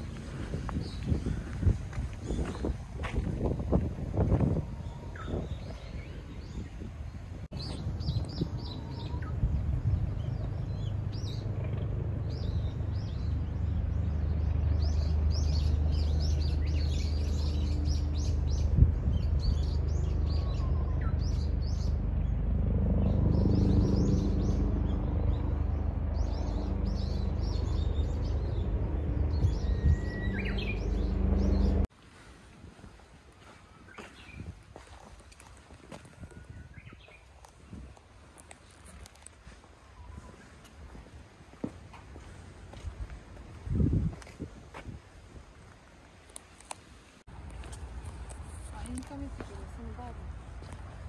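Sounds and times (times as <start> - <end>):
songbirds chirping: 0.0 - 32.2, 32.9 - 44.1, 44.7 - 51.0
steady low hum: 7.2 - 31.9.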